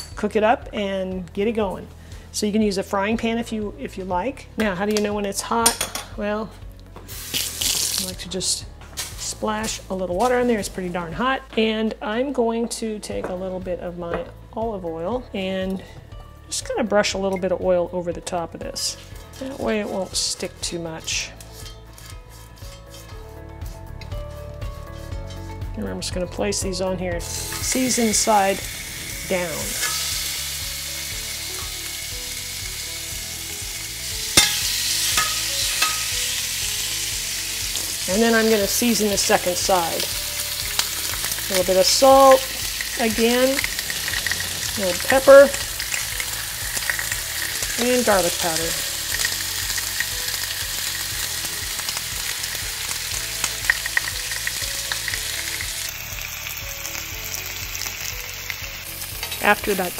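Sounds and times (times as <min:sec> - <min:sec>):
chicken sizzling on grill pan: 0:27.3 - 0:59.9
tongs clacking on pan: 0:34.4 - 0:36.2, 0:59.1 - 0:59.6.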